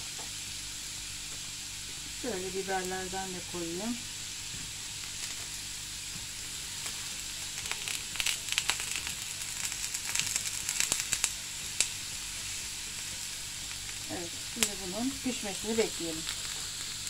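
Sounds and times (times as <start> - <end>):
meat sizzling on grill pan: 0.0 - 17.0
sharp crackling pops: 4.3 - 17.0.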